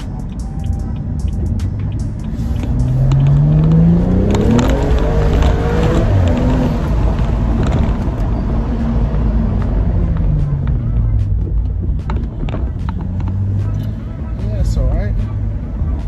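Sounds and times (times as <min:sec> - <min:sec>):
car engine accelerating: 0:00.0 - 0:16.0
exhaust pops: 0:01.0 - 0:08.6, 0:09.6 - 0:13.9.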